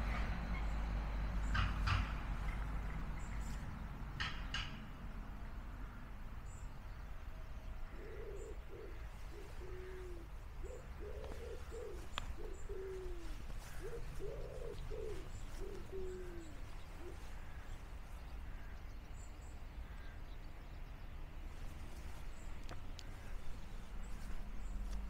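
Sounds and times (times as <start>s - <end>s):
wood pigeon cooing: 7.9s - 17.6s.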